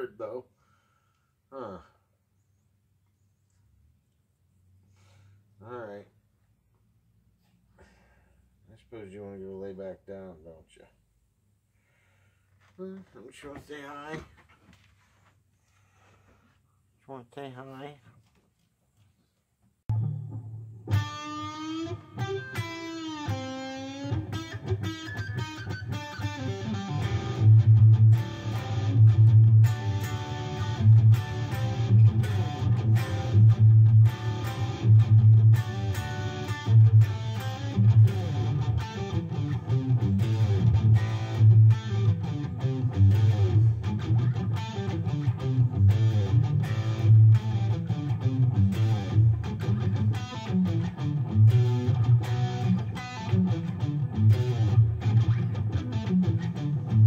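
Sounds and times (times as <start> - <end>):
electric guitar rock riffs: 19.9 - 57.0.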